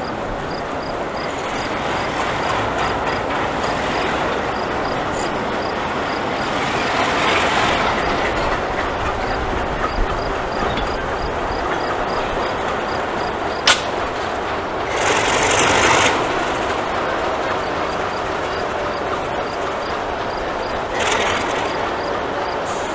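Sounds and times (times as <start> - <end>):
diesel locomotives rumbling past: 0.0 - 22.9
sharp metal clank: 13.6 - 14.2.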